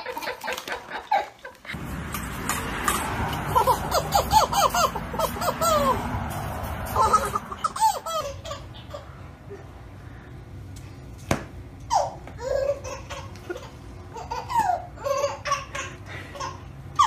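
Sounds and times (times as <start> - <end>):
baby laughing: 0.0 - 1.8, 2.7 - 9.2, 11.9 - 17.0.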